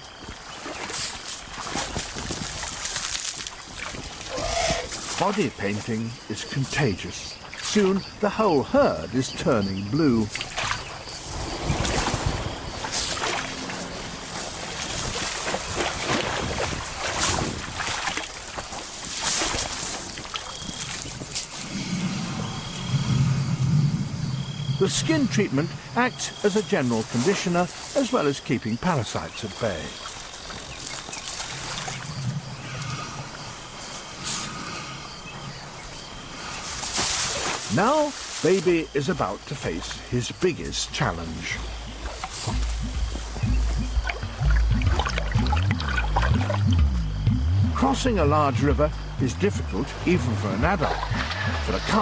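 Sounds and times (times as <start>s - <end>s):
elephants rumbling low: 3.8s - 6.2s, 9.7s - 18.6s, 19.6s - 24.8s, 30.8s - 38.1s, 41.0s - 52.0s
elephants spraying dust whooshes: 11.1s - 17.6s, 36.6s - 38.6s.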